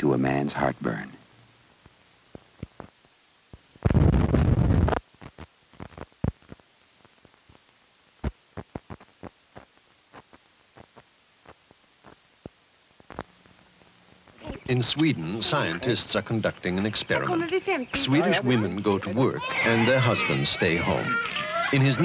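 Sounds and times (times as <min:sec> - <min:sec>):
sharp clicks and pops: 0:01.8 - 0:07.6, 0:08.2 - 0:14.6.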